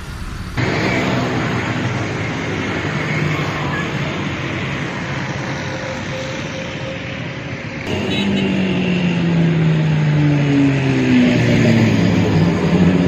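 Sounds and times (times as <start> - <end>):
hum of passing vehicles: 0.0 - 13.0
vehicle engine drone passing: 0.0 - 13.0.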